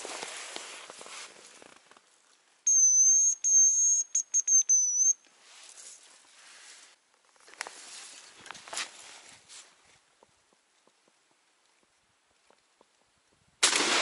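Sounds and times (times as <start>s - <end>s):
faint rustling in grass: 0.0s - 2.6s, 5.2s - 12.8s
high decoy whistle: 2.7s - 5.2s.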